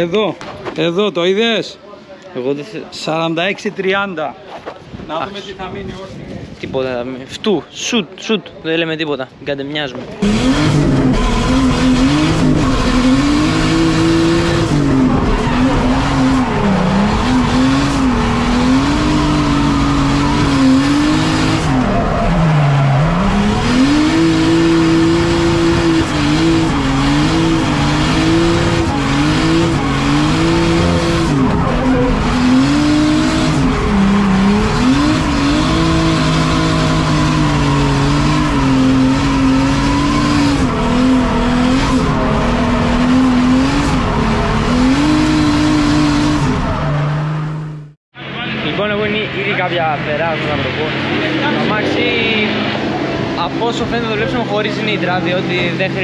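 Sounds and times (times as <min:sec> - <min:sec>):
car engine revving: 0:10.1 - 0:56.0
tyres squealing: 0:10.2 - 0:47.6.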